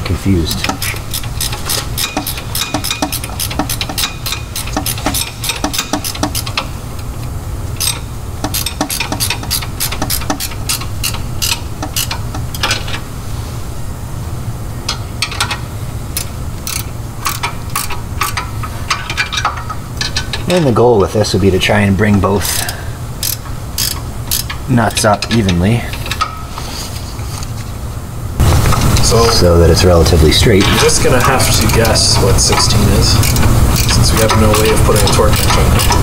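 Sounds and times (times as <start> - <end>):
ratchet wrench clicking: 0.6 - 6.7, 7.8 - 12.7, 16.2 - 20.4, 22.4 - 24.6, 31.2 - 36.0.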